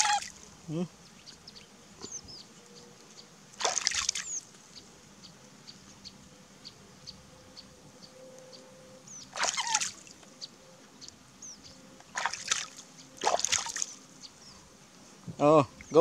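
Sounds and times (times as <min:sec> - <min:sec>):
water splashing: 0:00.0 - 0:00.4, 0:03.6 - 0:04.4, 0:09.3 - 0:10.2, 0:12.1 - 0:14.0
water dripping and trickling: 0:12.2 - 0:14.0.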